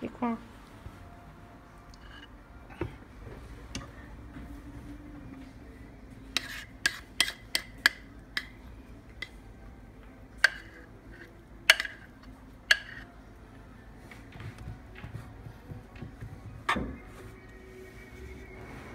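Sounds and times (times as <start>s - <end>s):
batter being scraped: 6.4s - 7.5s.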